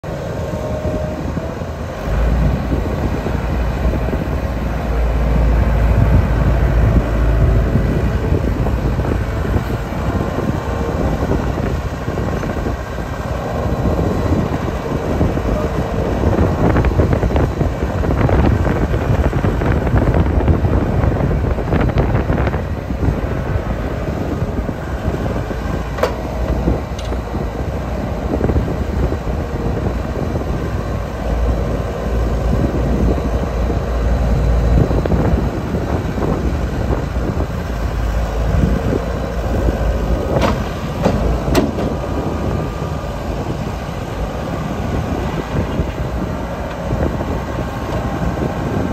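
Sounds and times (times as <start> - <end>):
diesel engine running: 0.0 - 48.9.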